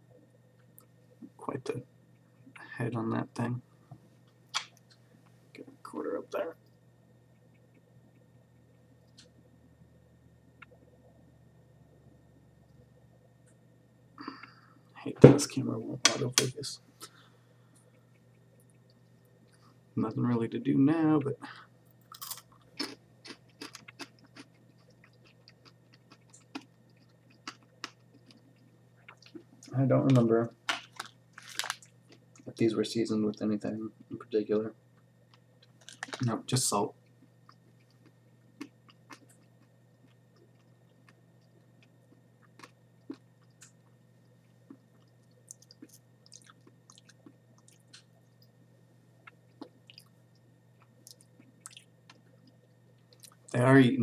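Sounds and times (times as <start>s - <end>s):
low steady hum: 0.0s - 54.0s
chewing and crunching: 21.9s - 29.8s, 30.7s - 32.6s, 34.9s - 36.4s, 37.0s - 53.6s.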